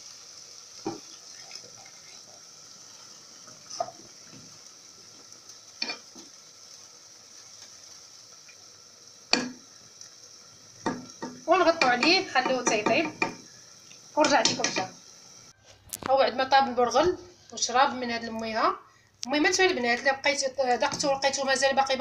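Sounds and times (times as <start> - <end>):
sizzling: 0.0 - 22.0
spoon knocking against pot: 10.8 - 13.4.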